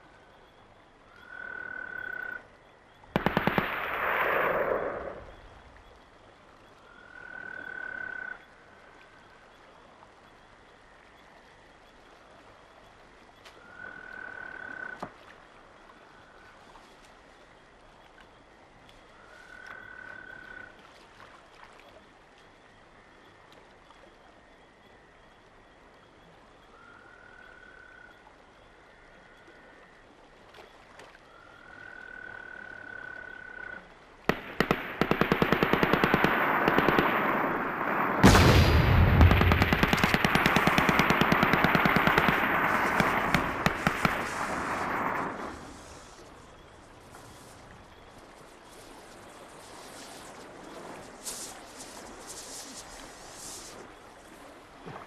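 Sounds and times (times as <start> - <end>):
machine-gun fire: 3.2 - 5.2, 34.3 - 45.7
heavy boom: 38.2 - 39.8.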